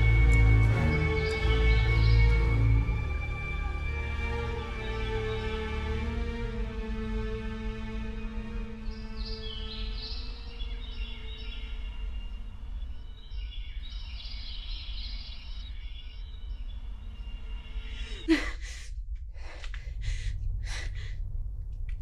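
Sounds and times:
low steady rumble: 0.0 - 14.4, 15.4 - 22.0
high drone of film-score tones: 0.0 - 22.0
woman breathing heavily: 17.9 - 21.5
woman gasping: 18.0 - 21.2.

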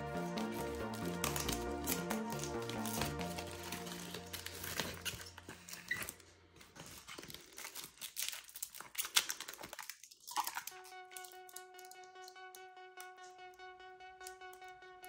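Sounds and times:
music with held notes: 0.0 - 6.2, 10.7 - 15.0
packaging rustling and clicking: 0.0 - 12.5.

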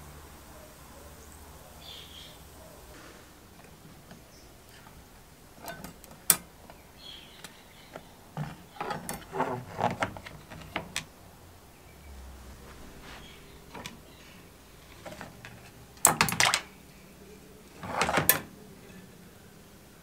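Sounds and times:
metal hooks clinking on plastic tub: 5.6 - 6.5.

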